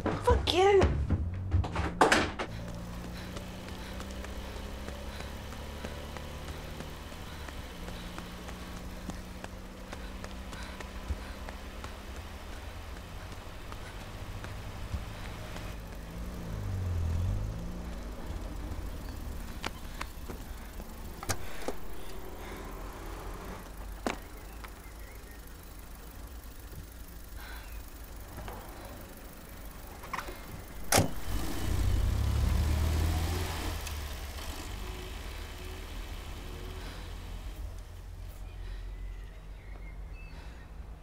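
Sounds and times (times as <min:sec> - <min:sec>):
sharp knocks: 0:00.0 - 0:02.6
car passing: 0:01.0 - 0:39.0.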